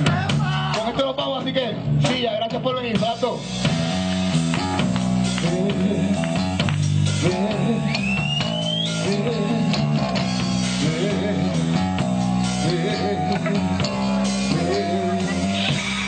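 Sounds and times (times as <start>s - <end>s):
live rock band: 0.0s - 16.0s
bending electric guitar notes: 3.4s - 16.0s.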